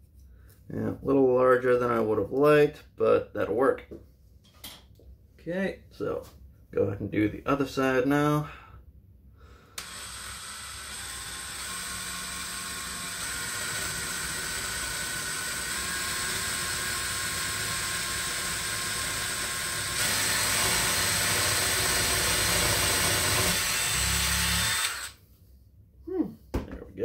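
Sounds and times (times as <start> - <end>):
cordless drill boring through wood: 9.8 - 25.2.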